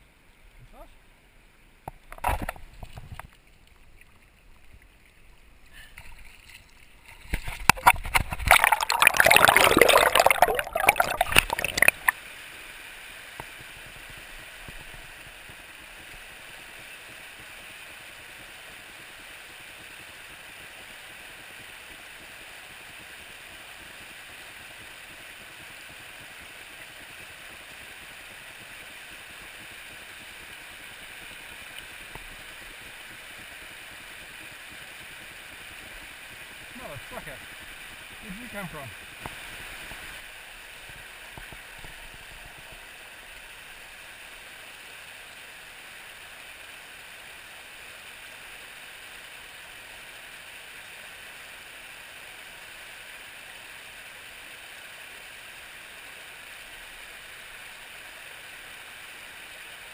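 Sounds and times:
river water rushing over stones: 1.9s - 59.9s
close splashing and knocking: 6.2s - 12.1s.

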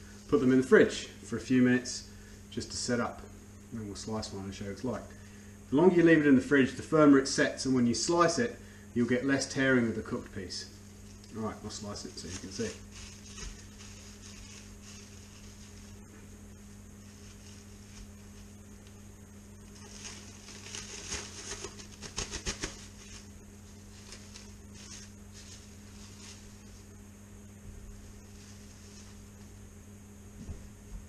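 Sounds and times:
steady low hum: 0.0s - 31.0s
cling film crinkling: 11.0s - 16.3s, 17.0s - 19.0s, 19.6s - 26.9s.

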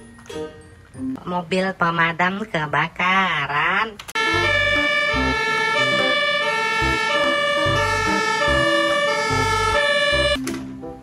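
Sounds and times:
fire engine siren: 4.2s - 10.4s.

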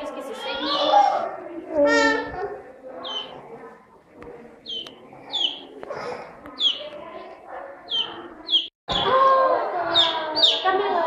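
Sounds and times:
children's voices: 0.0s - 11.0s
faint room murmur: 0.0s - 11.0s
chicks peeping: 3.0s - 3.4s, 4.6s - 7.0s, 7.8s - 11.0s.

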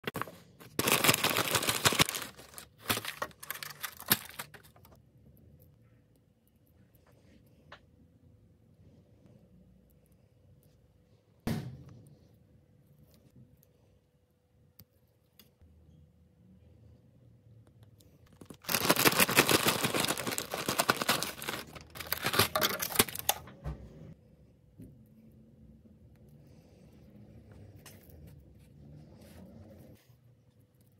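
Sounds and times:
packaging crinkling and tearing: 0.0s - 5.0s, 18.3s - 23.4s.

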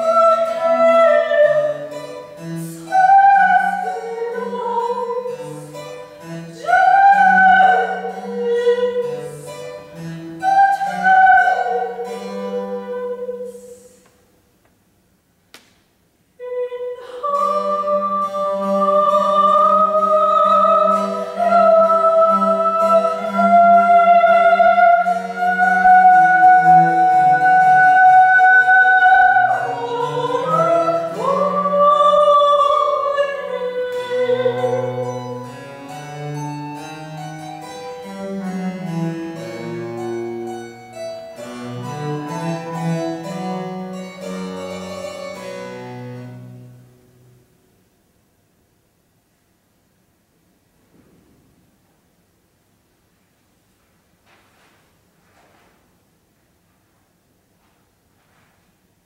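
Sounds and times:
cello: 0.0s - 13.8s, 16.7s - 47.4s
soprano singing: 0.0s - 14.1s, 16.4s - 46.5s
harpsichord: 18.2s - 46.9s.

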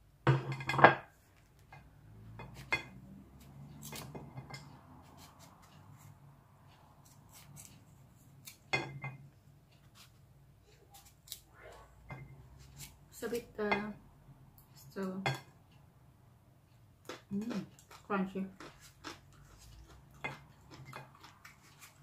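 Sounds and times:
knife cutting mango: 3.4s - 6.2s, 6.9s - 8.7s.

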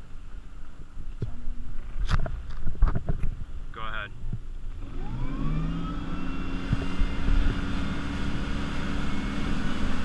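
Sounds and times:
wind: 0.0s - 10.0s
boat engine accelerating: 4.7s - 10.0s.

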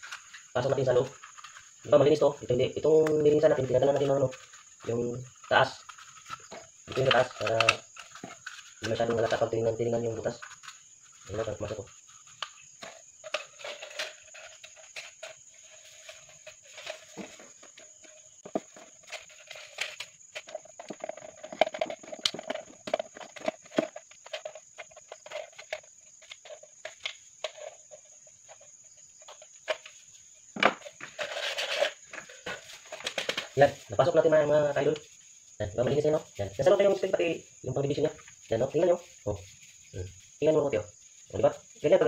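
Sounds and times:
aluminium can clicking and crinkling: 0.0s - 2.0s, 2.9s - 30.0s, 30.6s - 33.8s
cricket trilling: 0.0s - 42.0s.

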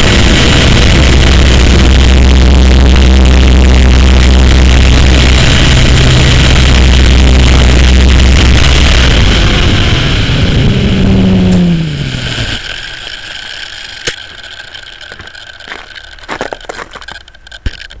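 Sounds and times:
helicopter rotor winding down: 0.0s - 18.0s
sharp clicks: 12.6s - 18.0s.

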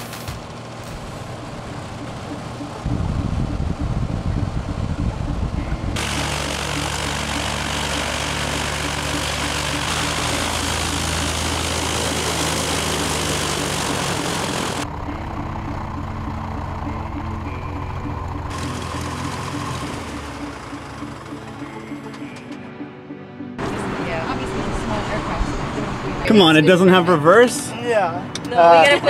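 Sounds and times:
propeller plane engine drone: 0.0s - 22.8s.

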